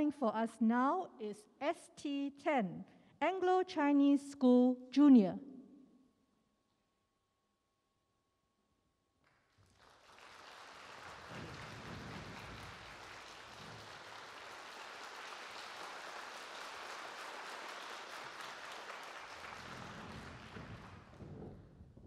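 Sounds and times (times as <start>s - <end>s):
audience applauding: 9.5s - 21.6s.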